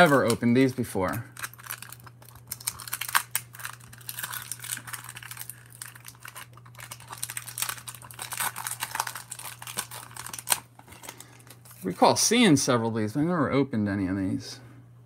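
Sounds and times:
paper wrapper crinkling: 0:00.0 - 0:12.0
steady low hum: 0:00.0 - 0:15.0.

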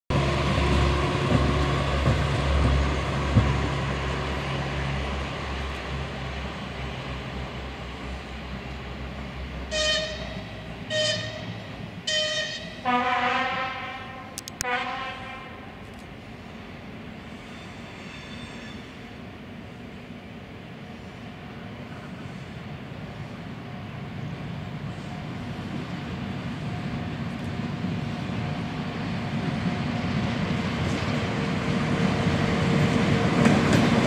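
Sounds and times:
locomotive engine rumble: 0:00.1 - 0:18.0
locomotive horn: 0:09.7 - 0:15.8.

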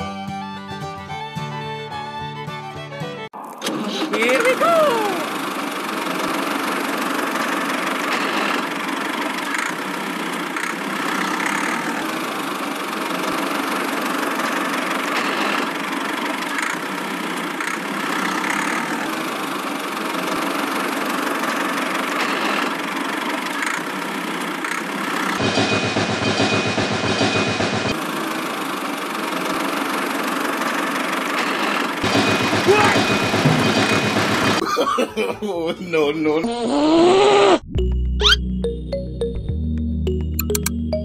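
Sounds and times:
toy tractor engine running: 0:03.6 - 0:25.5, 0:27.9 - 0:34.7.

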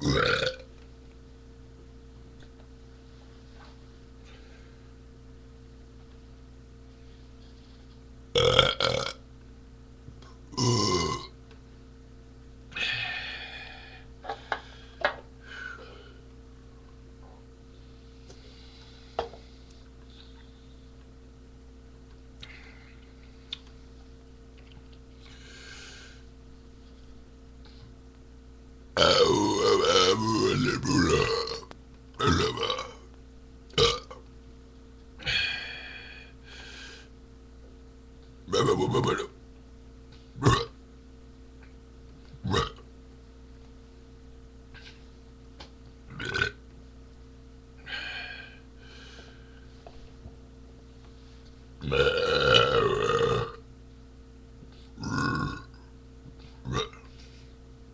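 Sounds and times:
man belching loudly: 0:00.0 - 0:00.7, 0:08.4 - 0:09.2, 0:10.5 - 0:11.3, 0:29.0 - 0:33.0, 0:33.7 - 0:34.2, 0:38.5 - 0:39.4, 0:40.4 - 0:40.8, 0:42.4 - 0:42.8, 0:46.1 - 0:46.6, 0:51.8 - 0:53.6, 0:55.0 - 0:55.8, 0:56.6 - 0:57.1
man burping: 0:00.0 - 0:00.7, 0:08.4 - 0:09.2, 0:10.5 - 0:11.4, 0:29.0 - 0:33.0, 0:33.7 - 0:34.2, 0:38.5 - 0:39.4, 0:40.4 - 0:40.8, 0:42.4 - 0:42.9, 0:46.1 - 0:46.6, 0:51.8 - 0:53.6, 0:55.0 - 0:55.9, 0:56.6 - 0:57.1.

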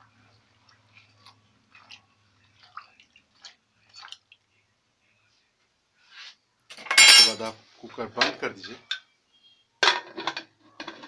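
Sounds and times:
spoon stirring wet food: 0:00.0 - 0:04.7.

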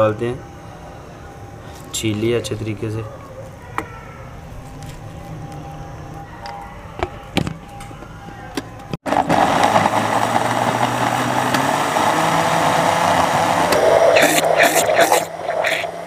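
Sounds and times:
blender motor running: 0:09.1 - 0:16.0.

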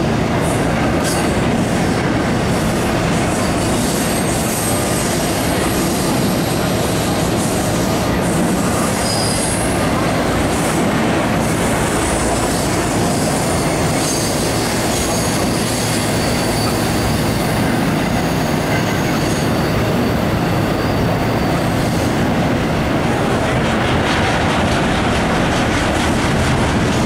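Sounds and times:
freight train wheels rumbling: 0:00.0 - 0:27.0
high-pitched wheel squeals: 0:08.9 - 0:09.7.

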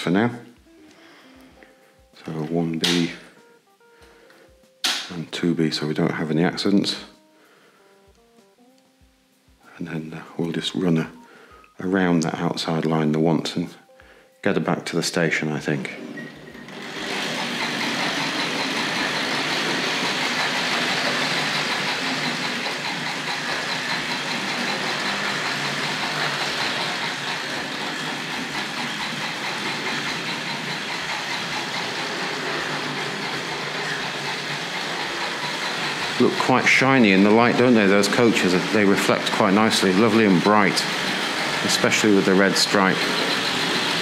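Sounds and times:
wheels clicking on rails: 0:15.9 - 0:44.0
model steam locomotive chuffing: 0:16.7 - 0:44.0.

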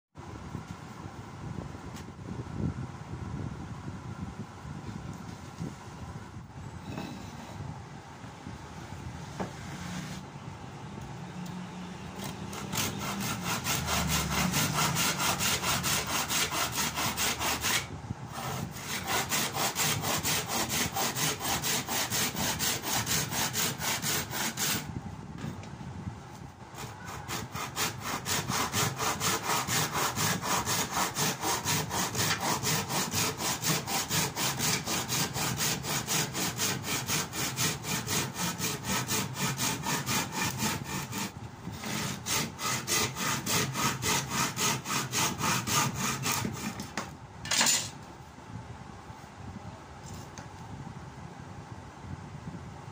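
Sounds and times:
hacksaw cutting wood: 0:12.2 - 0:24.9, 0:26.8 - 0:47.9.

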